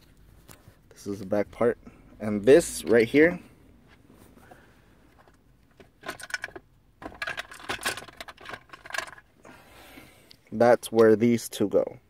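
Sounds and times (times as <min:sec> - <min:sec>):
small plastic parts clicking and rattling: 0:05.3 - 0:09.3.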